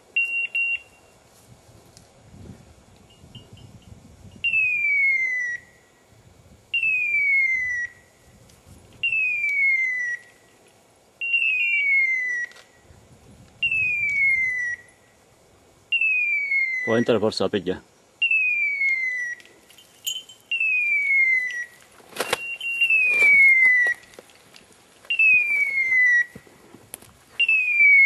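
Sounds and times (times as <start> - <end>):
short electronic beeps: 0.2 - 1.1, 22.3 - 23.6.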